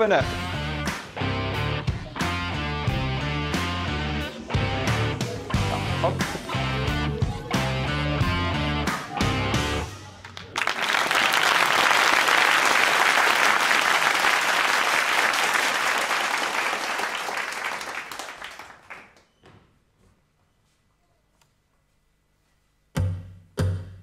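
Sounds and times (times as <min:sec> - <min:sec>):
audience applauding: 0:08.8 - 0:19.2.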